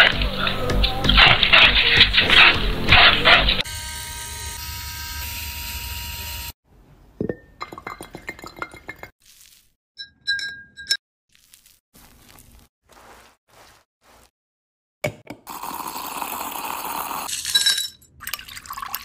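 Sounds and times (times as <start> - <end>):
glass and metal clinking: 7.2 - 9.1, 10.0 - 11.0, 17.3 - 18.9.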